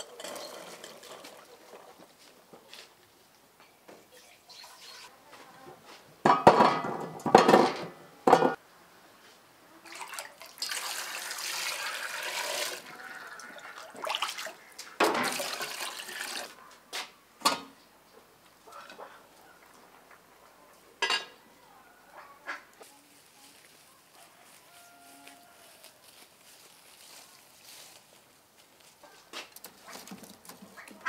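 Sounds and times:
pot clanking: 0:00.0 - 0:01.5, 0:06.2 - 0:08.6, 0:21.0 - 0:21.3
water running into pot: 0:09.8 - 0:16.6.

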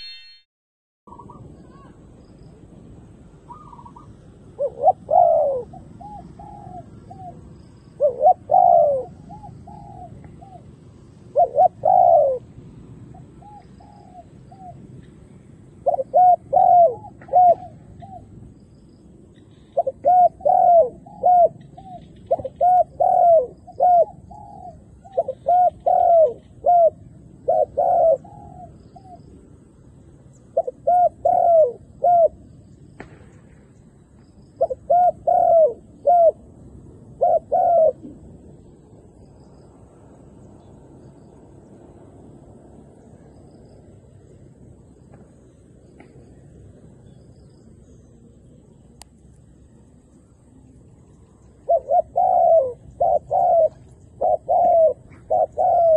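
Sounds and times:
dove cooing: 0:03.5 - 0:14.9, 0:15.6 - 0:18.3, 0:19.5 - 0:29.4, 0:30.5 - 0:32.4, 0:34.6 - 0:38.8, 0:49.6 - 0:55.9.

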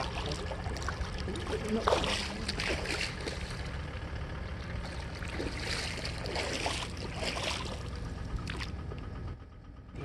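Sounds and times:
distant tractor engine rumble: 0:00.0 - 0:10.0.

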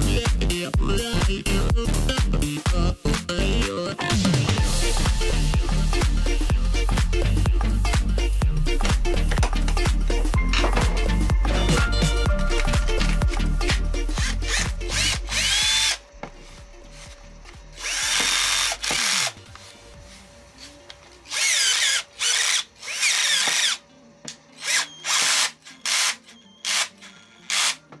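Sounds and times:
cordless drill whining in bursts: 0:14.1 - 0:16.0, 0:17.8 - 0:19.3.

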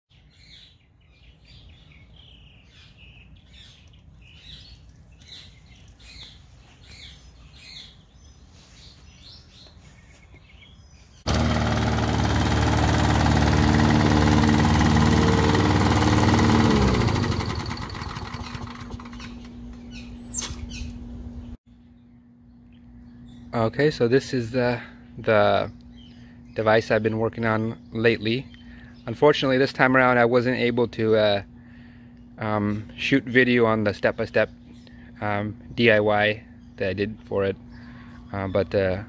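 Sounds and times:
birds chirping: 0:00.1 - 0:11.9, 0:12.7 - 0:39.0
lawn mower engine running: 0:11.2 - 0:20.3.

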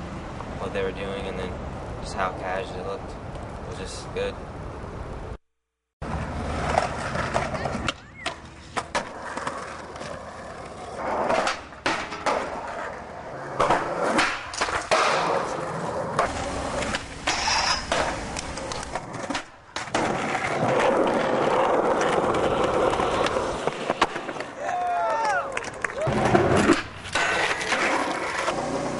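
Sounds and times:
skateboard wheels rolling on concrete: 0:06.0 - 0:28.9
skateboard popping and landing clacks: 0:06.3 - 0:24.6, 0:25.6 - 0:28.9.

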